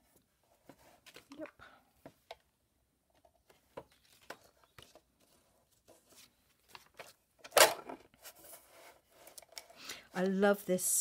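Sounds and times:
paper rustling and tapping: 3.2 - 8.4.

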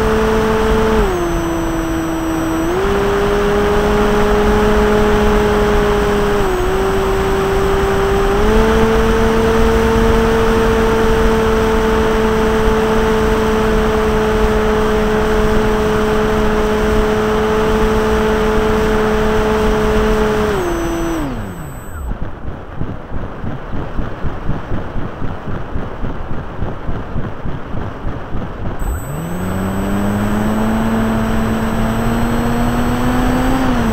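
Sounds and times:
electric motor and propeller whining: 0.0 - 22.2, 28.8 - 33.9.

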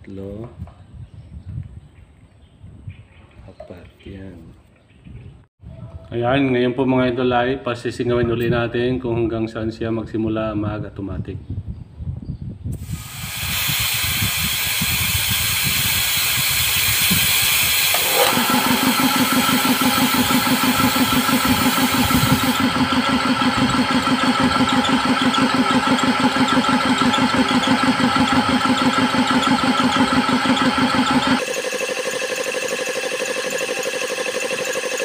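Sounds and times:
compressed air hissing: 12.8 - 23.1
piston compressor running: 12.8 - 35.0.

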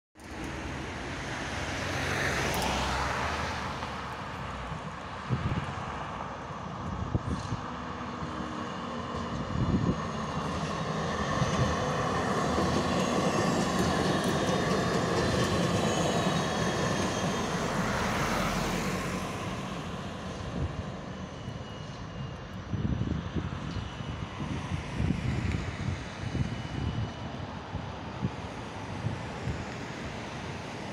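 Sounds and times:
tram wheels on rail: 0.2 - 22.6
road traffic passing: 0.2 - 30.9.

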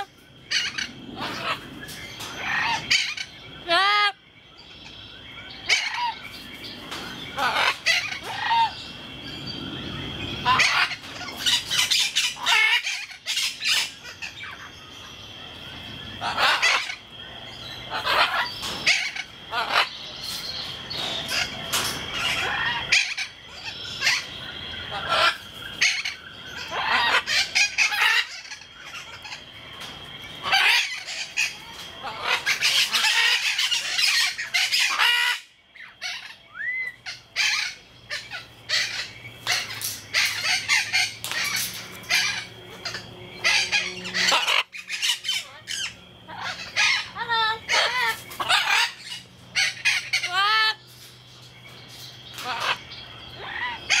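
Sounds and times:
parrot calling loudly: 7.4 - 8.7, 10.4 - 14.6, 16.2 - 17.0, 17.9 - 20.0, 24.9 - 29.4, 30.4 - 50.8, 52.4 - 52.8.

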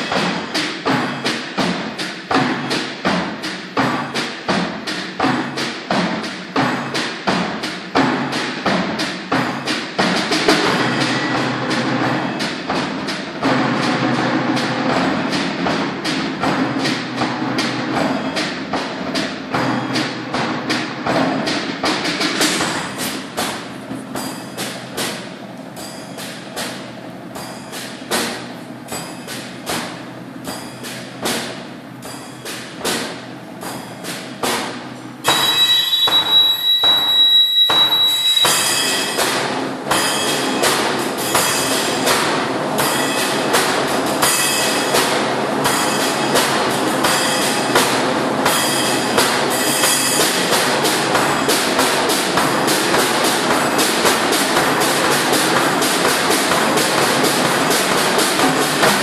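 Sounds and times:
percussion ensemble playing sticks: 0.0 - 59.0
high steady whistle tone: 35.2 - 39.2.

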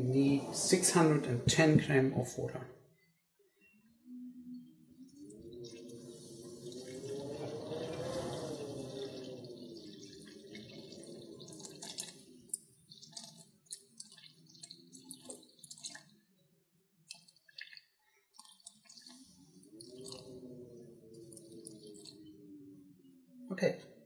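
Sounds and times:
water dribbling and dripping: 5.1 - 16.3, 17.0 - 22.4
water pouring into metal bowl: 5.2 - 16.2, 17.1 - 20.6, 21.2 - 22.3.

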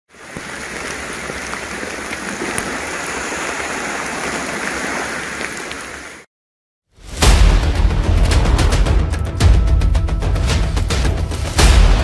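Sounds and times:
rain hissing: 0.1 - 6.3.

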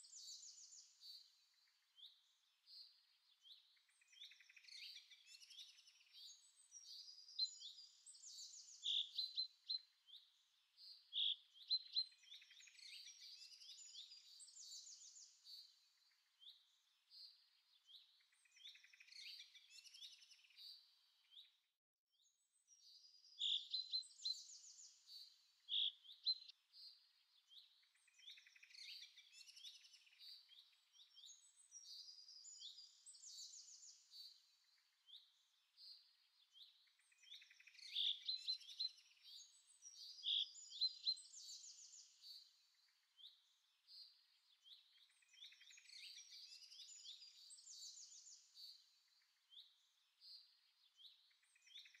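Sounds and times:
birds chirping and singing: 22.6 - 26.6, 27.3 - 52.0.

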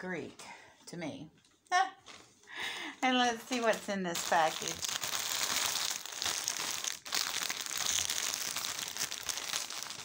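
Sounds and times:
plastic packaging crinkling: 3.4 - 10.0.

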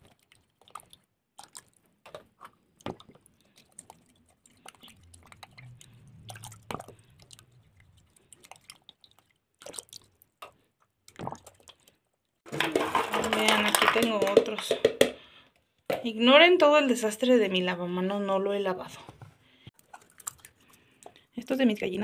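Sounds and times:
dripping water: 0.0 - 12.5, 19.7 - 21.3.

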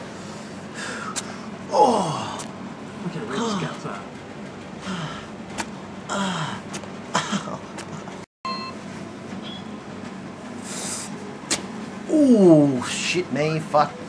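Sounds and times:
man groaning in pain: 1.7 - 2.4, 6.1 - 7.6.

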